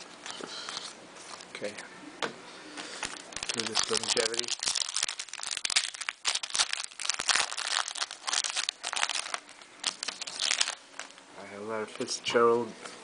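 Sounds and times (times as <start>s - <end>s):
foil wrapper tearing and crinkling: 2.9s - 11.2s.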